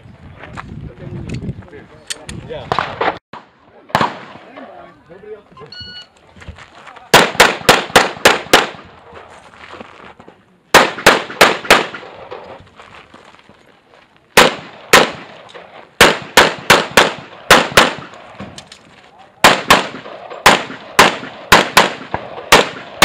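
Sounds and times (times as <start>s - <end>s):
pistol shots: 2.7s - 4.5s, 7.1s - 8.9s, 10.7s - 12.6s, 14.4s - 18.6s, 19.4s - 23.0s.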